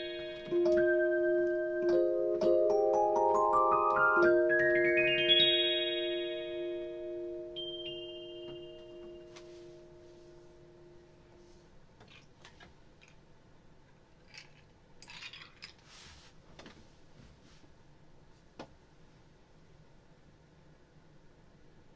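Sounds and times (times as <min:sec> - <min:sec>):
digital piano chord: 0:00.0 - 0:11.4.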